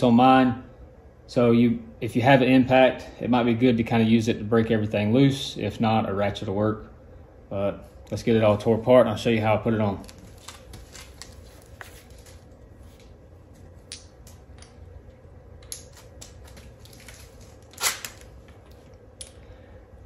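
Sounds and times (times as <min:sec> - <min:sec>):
workshop background hum: 0:00.0 - 0:20.0.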